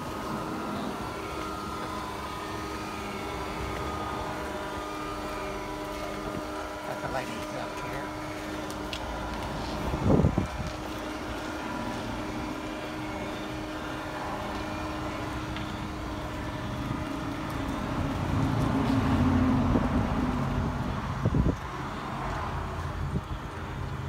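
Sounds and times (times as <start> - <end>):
awning motor hum: 0.0 - 24.0.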